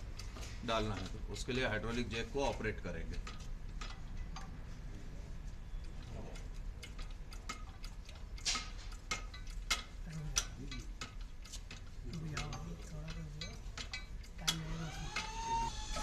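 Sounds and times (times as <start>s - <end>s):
hydraulic jack clicking and knocking: 0.0s - 4.6s, 6.0s - 16.0s.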